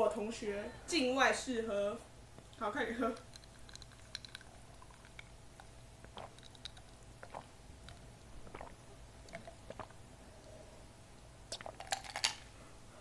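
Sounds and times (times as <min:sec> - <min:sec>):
faint swallowing: 0:03.2 - 0:10.8, 0:11.5 - 0:12.2.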